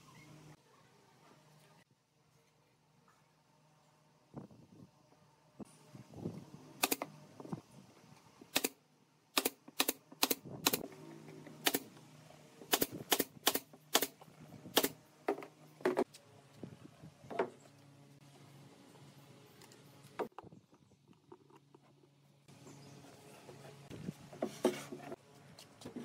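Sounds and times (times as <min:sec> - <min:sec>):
nail gun firing into wood: 0:08.5 - 0:10.8, 0:11.6 - 0:11.9, 0:12.7 - 0:15.0.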